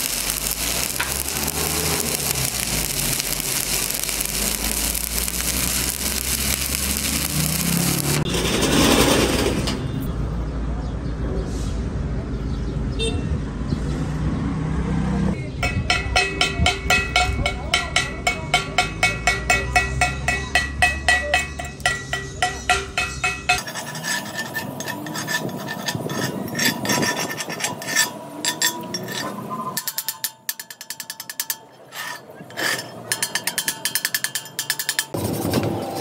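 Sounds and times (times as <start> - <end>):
metal scraping: 0.0 - 10.1, 15.4 - 35.6
hammer chipping slag off steel: 15.5 - 35.2.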